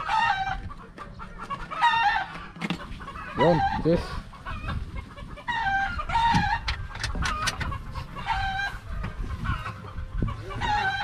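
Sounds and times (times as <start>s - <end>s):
rooster crowing: 10.5s - 11.0s.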